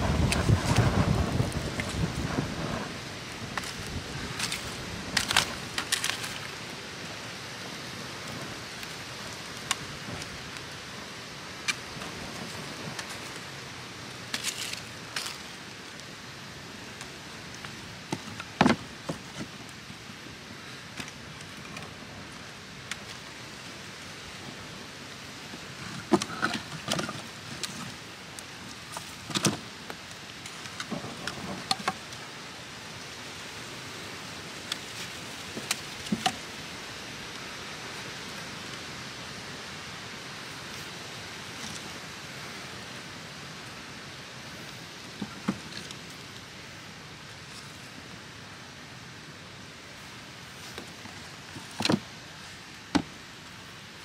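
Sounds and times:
wind on microphone: 0:00.0 - 0:05.8
firewood knocking: 0:52.9 - 0:53.1.

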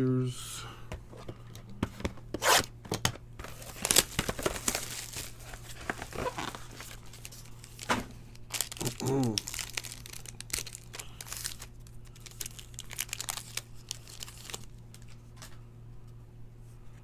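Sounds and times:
foil card pack crinkling: 0:03.4 - 0:15.6.

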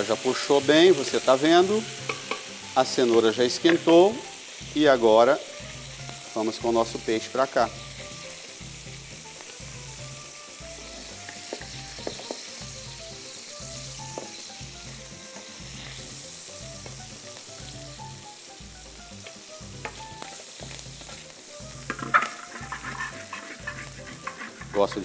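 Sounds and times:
fish sizzling in oil: 0:00.0 - 0:25.0
utensil tapping pan: 0:01.9 - 0:04.2, 0:11.2 - 0:12.6, 0:19.2 - 0:25.0.

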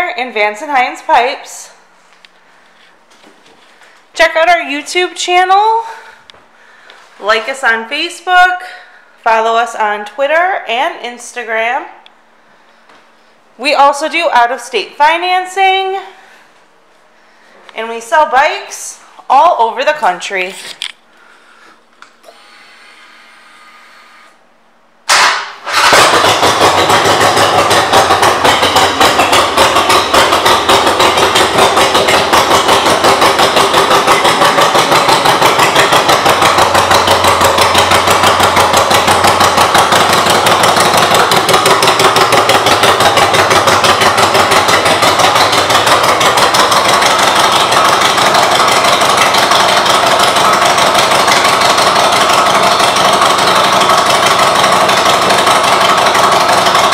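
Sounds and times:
motorcycle engine starting and idling: 0:22.0 - 0:24.4, 0:25.0 - 0:56.9.

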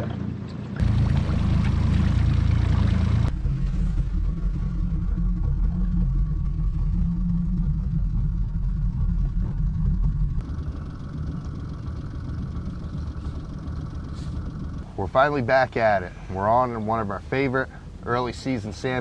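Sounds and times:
outboard motor running: 0:00.0 - 0:19.0
higher hum: 0:00.8 - 0:19.0.

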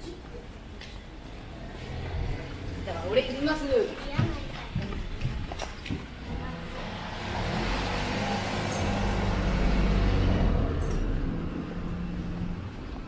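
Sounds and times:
tyre and road noise: 0:00.0 - 0:13.0
van passing by: 0:01.4 - 0:03.7, 0:06.3 - 0:13.0.

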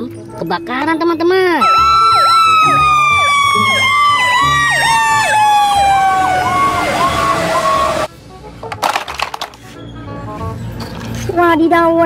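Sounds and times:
siren sweeping rapidly: 0:01.6 - 0:08.1
siren wail falling in pitch: 0:01.6 - 0:08.1.

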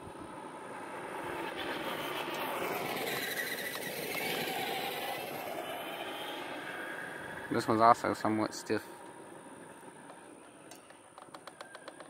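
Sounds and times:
rc truck electric motor whining: 0:00.7 - 0:07.6.

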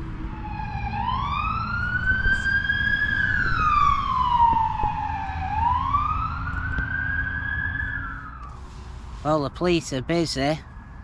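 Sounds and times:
police siren wailing: 0:00.0 - 0:08.7
road traffic rumble: 0:00.0 - 0:11.0.

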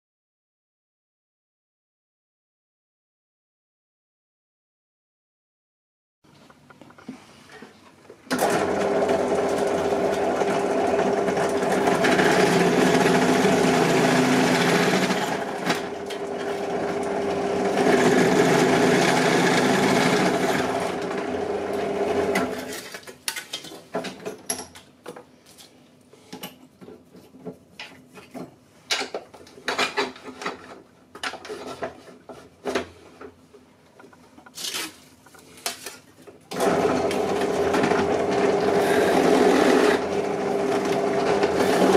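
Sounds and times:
drill press motor hum: 0:08.3 - 0:22.5, 0:36.5 - 0:41.9.

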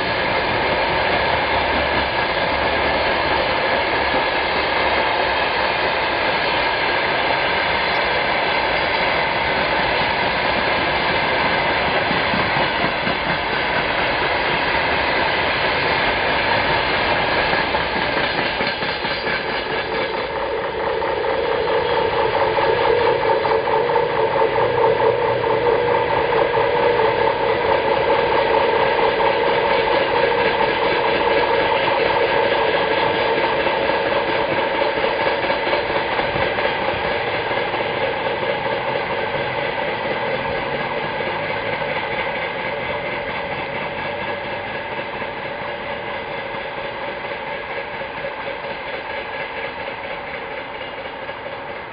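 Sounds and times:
freight train wheels rattling: 0:00.0 - 0:51.9.

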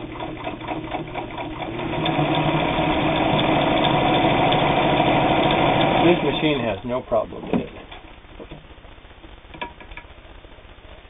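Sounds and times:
sewing machine stitching: 0:00.0 - 0:06.6.

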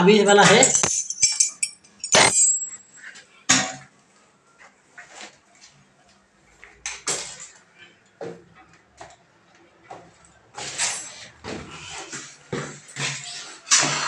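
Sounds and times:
metal hand tools clinking: 0:00.4 - 0:02.8.

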